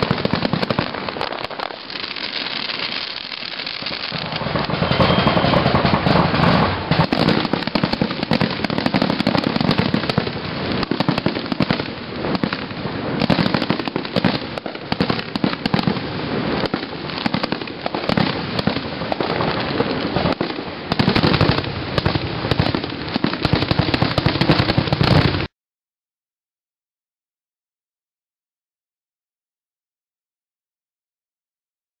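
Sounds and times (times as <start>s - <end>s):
fireworks bangs and crackling: 0.0s - 25.5s.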